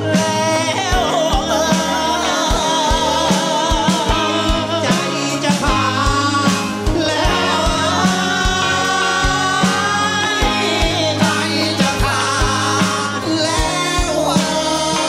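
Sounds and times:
band with steady drum beat: 0.0 - 15.0
men singing into microphones: 0.0 - 15.0.

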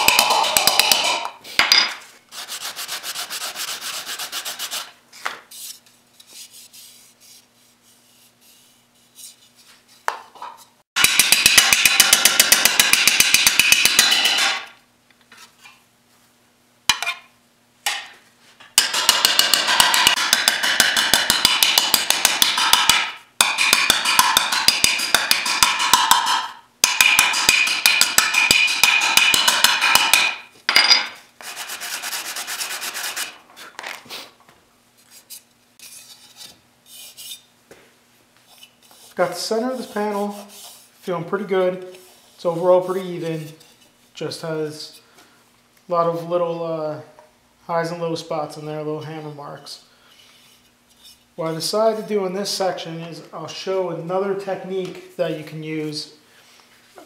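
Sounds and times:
hammer striking metal panel: 11.0 - 14.7, 18.8 - 30.4.

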